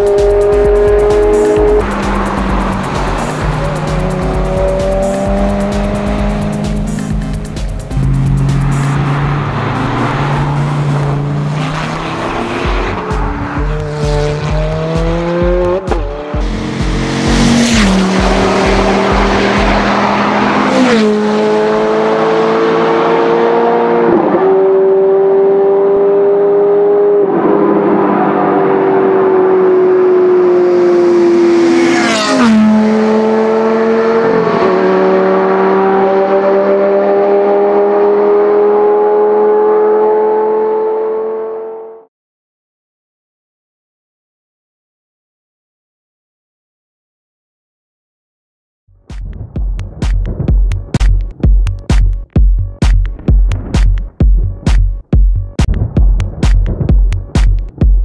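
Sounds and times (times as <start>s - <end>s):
sports car engines accelerating: 0.0s - 42.1s.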